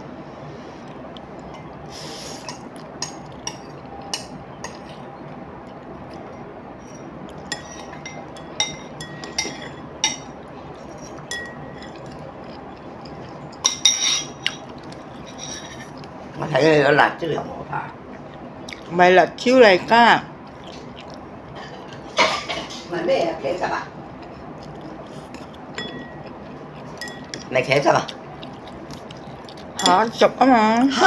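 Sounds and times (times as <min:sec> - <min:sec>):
chopsticks clinking on ceramic bowl: 0:10.9 - 0:16.0, 0:25.3 - 0:26.4, 0:27.0 - 0:27.5, 0:29.0 - 0:30.2.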